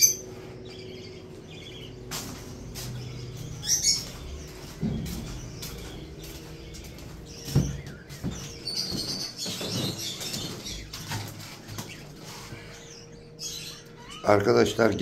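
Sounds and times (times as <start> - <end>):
budgerigars chirping: 0.0 - 15.0
sharp knocks or footsteps: 2.1 - 12.0.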